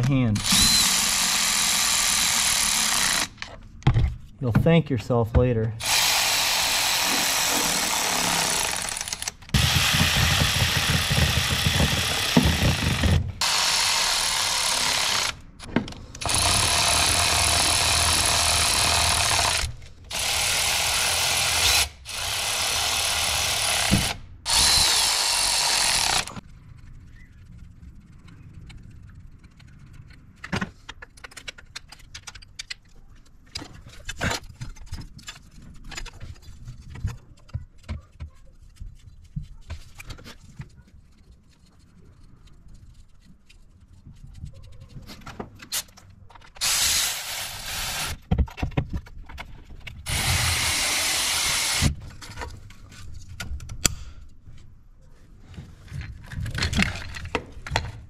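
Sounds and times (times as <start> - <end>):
hand tools clicking and knocking: 7.0 - 13.6
loud hissing bursts: 46.6 - 48.2.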